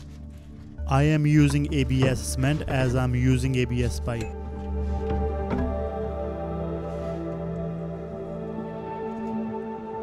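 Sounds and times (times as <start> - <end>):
calm music with long held notes: 0.0 - 10.0.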